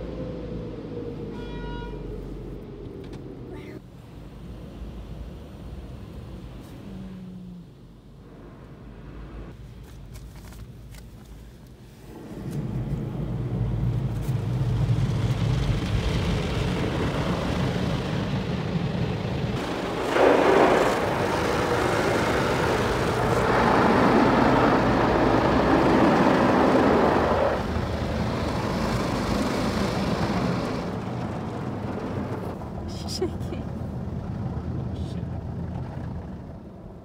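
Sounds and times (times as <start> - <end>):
car wash machinery hum: 0.0 - 37.0
water spray rushing against car: 12.0 - 31.2.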